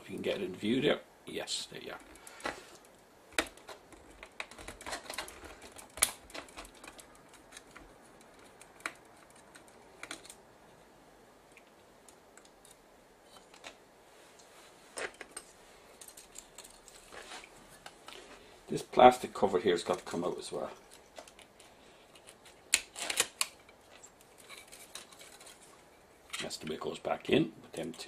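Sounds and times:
small plastic and metal parts clicking: 1.9s - 10.4s, 15.0s - 17.1s, 19.9s - 25.7s.

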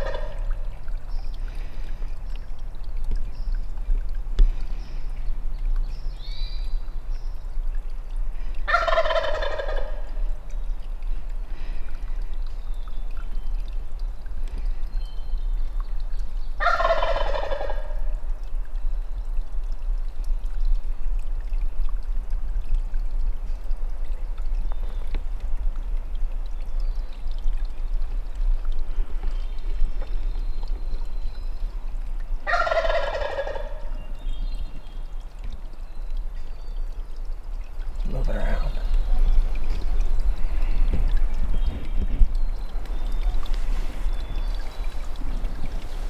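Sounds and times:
turkey gobbling: 0.0s - 0.4s, 8.7s - 10.2s, 16.6s - 18.1s, 32.5s - 33.9s
songbird chirps: 0.9s - 8.2s, 8.8s - 18.0s, 26.4s - 46.0s.

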